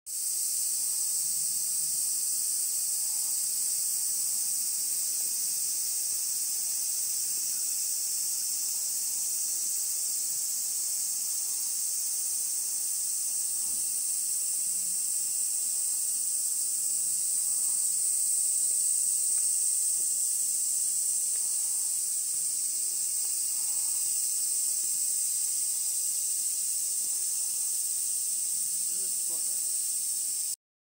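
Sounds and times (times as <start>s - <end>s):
cicadas shrilling: 0.1s - 30.6s.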